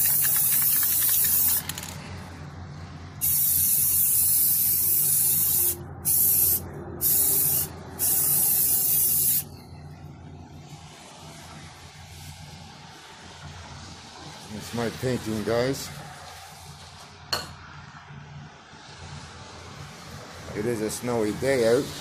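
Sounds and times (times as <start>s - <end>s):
spray paint can hissing: 0.0s - 2.0s, 3.2s - 9.5s.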